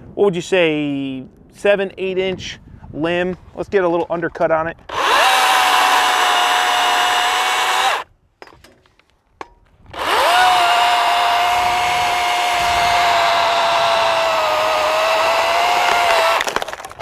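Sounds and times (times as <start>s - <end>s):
electric chainsaw whine: 4.9s - 8.1s, 9.9s - 16.6s.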